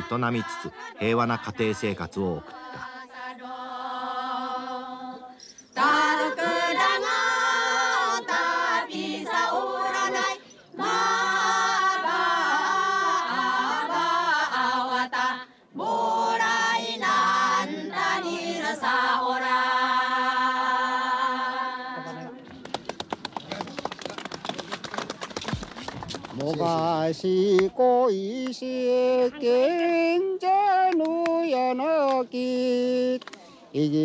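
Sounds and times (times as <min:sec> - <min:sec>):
group of voices singing: 0:00.0 - 0:22.5, 0:26.3 - 0:34.0.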